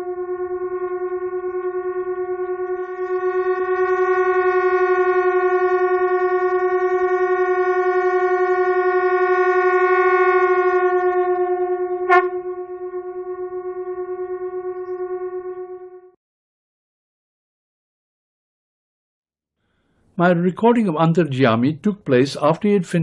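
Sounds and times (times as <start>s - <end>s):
conch shells blown: 0.0s - 16.1s.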